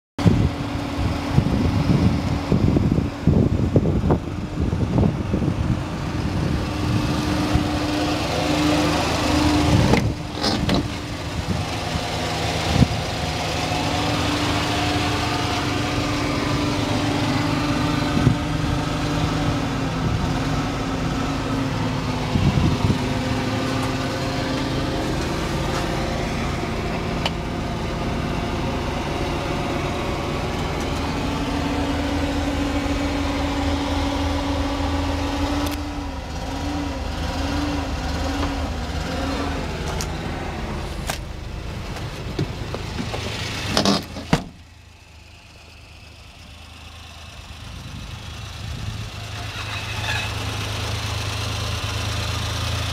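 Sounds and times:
small engine idling: 0.3 - 52.9
knocks and bumps: 41.1 - 44.6.

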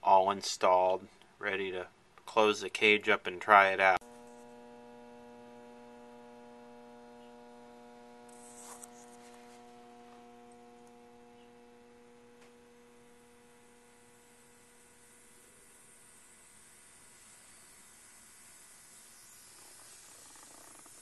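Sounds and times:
faint mains hum: 0.0 - 21.0
brief hiss: 14.1 - 21.0.

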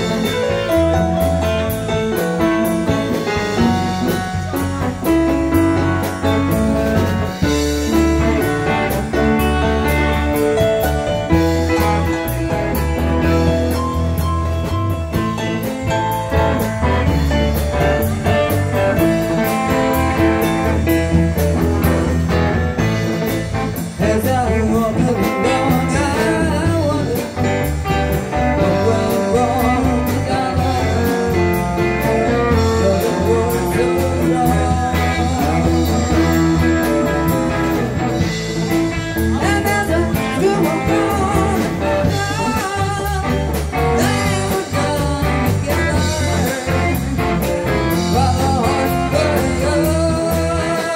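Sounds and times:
digital piano: 0.0 - 50.9
electric guitar: 0.0 - 50.9
woman singing: 24.0 - 27.5, 28.6 - 31.4, 32.0 - 37.9, 39.4 - 47.3, 47.9 - 50.9.

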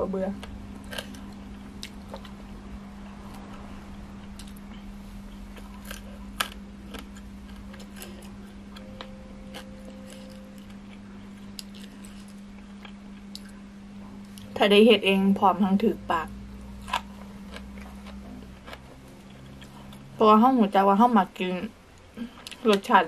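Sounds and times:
steady low hum: 0.0 - 23.0
quiet chewing: 0.4 - 2.4, 3.0 - 14.6, 16.6 - 20.1.

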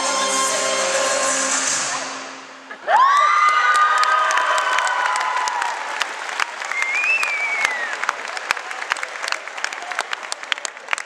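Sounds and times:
high whoop: 2.8 - 6.0
audience applauding and cheering: 2.8 - 11.0.

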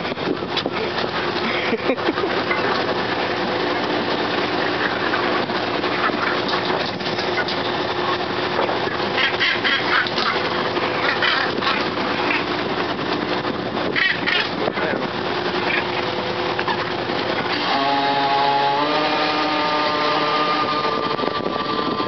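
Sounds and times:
engine hum: 0.0 - 22.0
seabird squawks: 9.1 - 12.6, 13.9 - 14.6.

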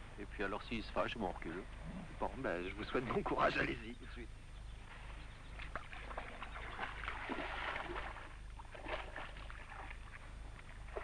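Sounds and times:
water splashing and sloshing: 5.5 - 11.0.

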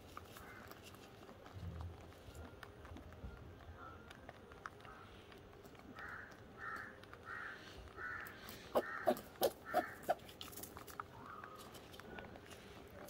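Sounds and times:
harsh cawing calls: 6.0 - 10.2.

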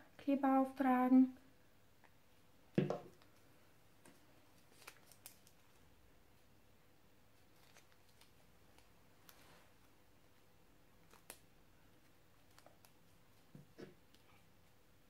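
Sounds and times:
paper clicks and crinkles: 4.1 - 5.8, 7.4 - 9.6, 11.0 - 11.4, 12.3 - 13.1.

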